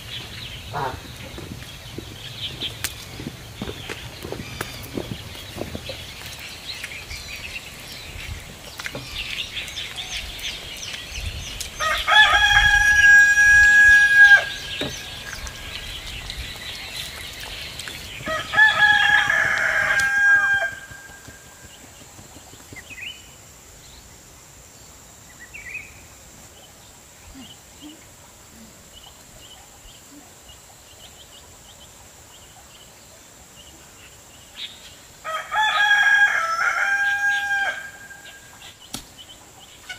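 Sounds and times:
small birds chirping: 0:00.0 - 0:24.2, 0:24.8 - 0:35.2, 0:37.1 - 0:39.9
rooster crowing: 0:11.8 - 0:14.8, 0:18.3 - 0:21.1, 0:35.2 - 0:38.4.

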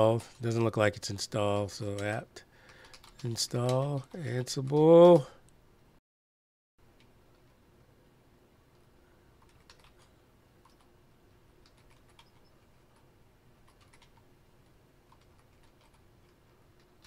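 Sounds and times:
low steady background noise: 0:00.0 - 0:06.0, 0:06.8 - 0:17.0
keyboard typing: 0:01.5 - 0:05.3, 0:09.4 - 0:10.9, 0:11.6 - 0:17.0.

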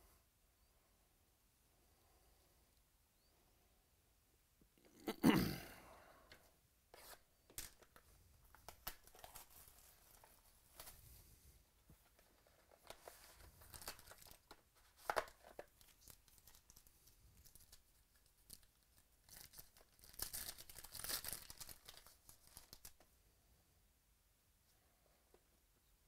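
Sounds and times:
foil wrapper tearing and crinkling: 0:08.6 - 0:10.9, 0:12.8 - 0:23.0.

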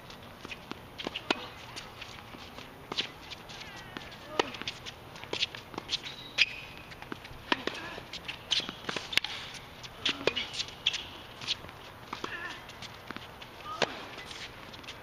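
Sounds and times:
footsteps on court: 0:00.0 - 0:15.0
sneaker squeaks: 0:00.4 - 0:15.0
tennis ball bouncing: 0:00.4 - 0:15.0
racket striking tennis ball: 0:00.5 - 0:01.6, 0:03.9 - 0:14.5.

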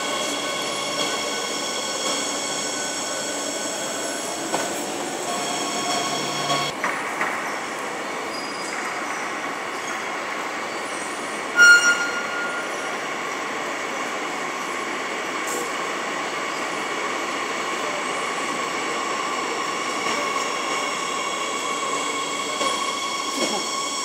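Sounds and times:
train rumble and whine: 0:00.0 - 0:24.0
loud high-pitched tone: 0:11.6 - 0:13.1.

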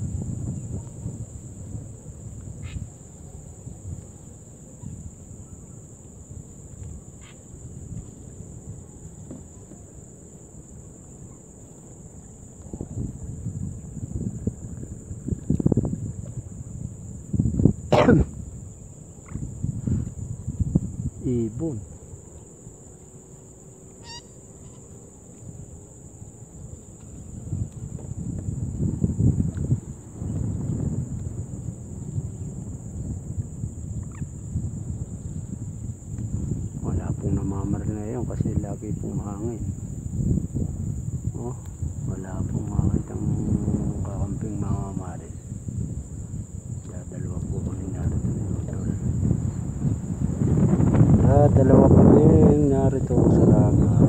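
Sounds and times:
insects droning: 0:00.0 - 0:54.0
low wind rumble on microphone: 0:00.0 - 0:54.0
short bird call: 0:24.0 - 0:24.8.

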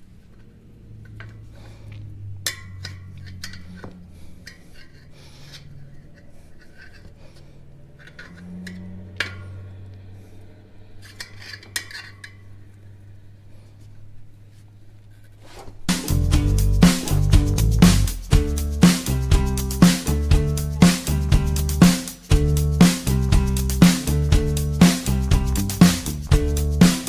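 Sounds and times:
tire irons scraping on metal rim: 0:02.4 - 0:12.7.

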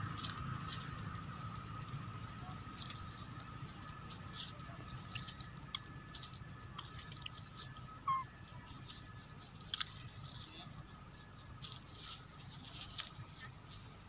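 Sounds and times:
dry leaves crackling: 0:00.0 - 0:14.0
short squeak: 0:08.0 - 0:08.3.

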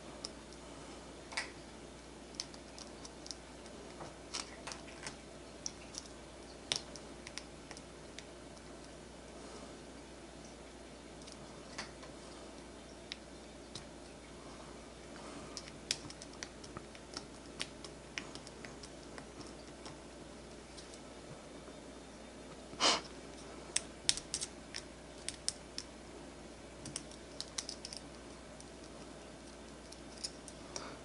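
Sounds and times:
small metal parts clicking: 0:26.8 - 0:28.1.

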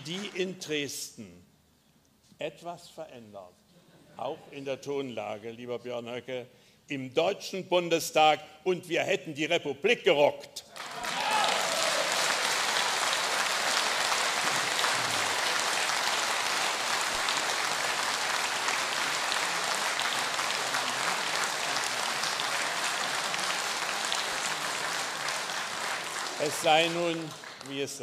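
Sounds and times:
audience applauding: 0:00.0 - 0:00.4, 0:10.7 - 0:28.0.

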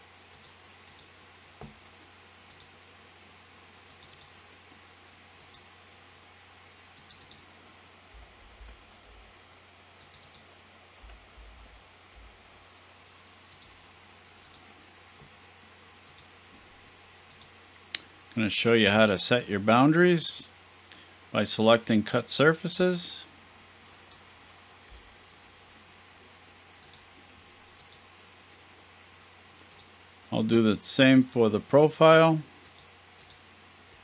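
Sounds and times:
steady low hum: 0:00.0 - 0:34.0
mouse and keyboard clicks: 0:03.9 - 0:04.3, 0:07.0 - 0:07.4, 0:10.0 - 0:10.5, 0:29.6 - 0:29.9.

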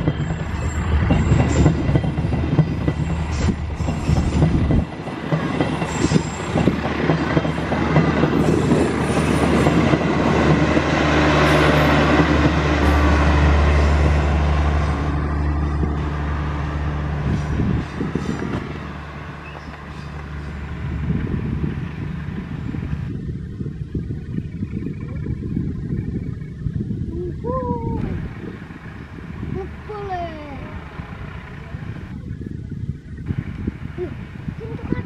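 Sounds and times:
train wheels clicking over rail joints: 0:00.0 - 0:16.2, 0:17.2 - 0:23.1
distant train rumble: 0:00.0 - 0:35.0
train rolling rumble: 0:00.0 - 0:35.0
low engine hum: 0:06.5 - 0:35.0.

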